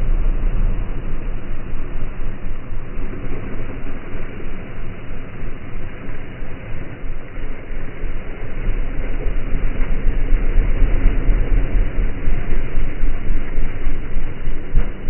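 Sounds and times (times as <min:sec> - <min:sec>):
quad bike engine rumbling: 0:00.0 - 0:05.5.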